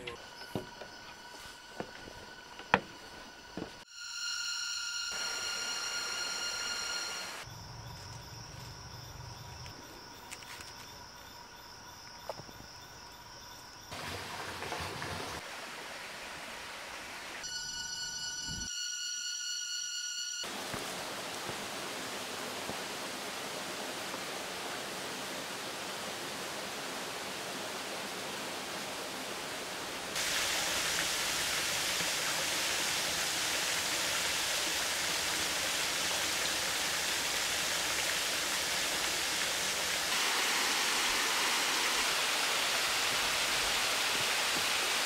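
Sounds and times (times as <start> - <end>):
water rushing: 20.5 - 45.0.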